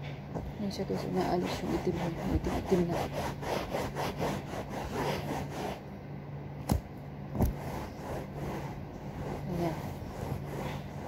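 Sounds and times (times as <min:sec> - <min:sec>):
cloth rubbing a sofa: 0:00.9 - 0:05.8, 0:07.4 - 0:11.0.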